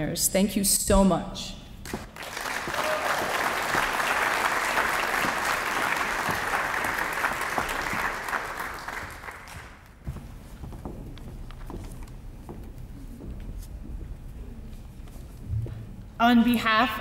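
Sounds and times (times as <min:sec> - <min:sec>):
audience applauding: 0:02.0 - 0:10.0.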